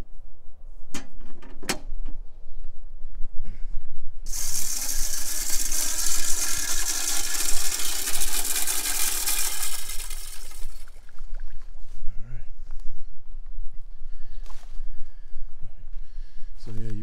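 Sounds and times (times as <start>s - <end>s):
corn kernels rattling spray: 4.3s - 11.0s
feeder motor spinning: 4.3s - 11.1s.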